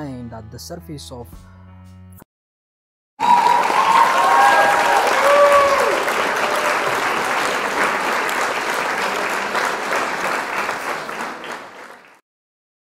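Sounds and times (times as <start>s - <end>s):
crowd applauding: 3.2s - 12.2s
crowd cheering: 3.2s - 12.2s.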